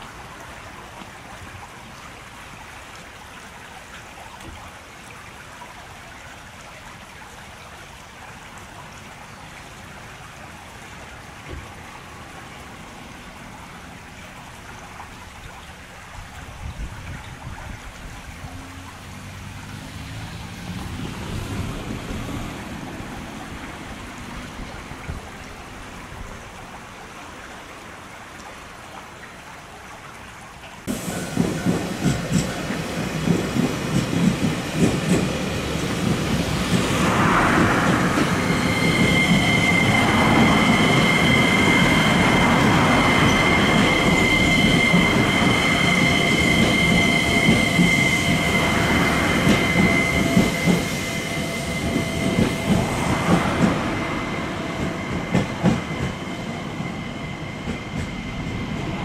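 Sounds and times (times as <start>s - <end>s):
electric train motor whine: 35.6s - 59.0s.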